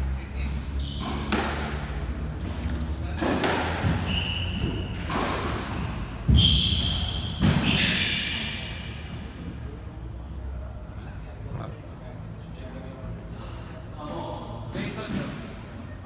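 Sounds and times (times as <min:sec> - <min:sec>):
squash ball smacks: 0:01.0 - 0:01.8, 0:03.2 - 0:04.1.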